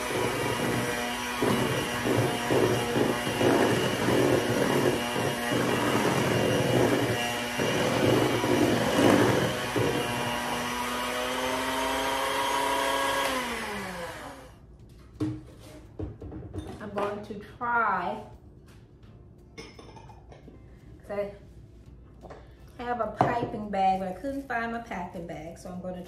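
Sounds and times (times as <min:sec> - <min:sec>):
electric hand mixer whining: 0:00.0 - 0:14.7.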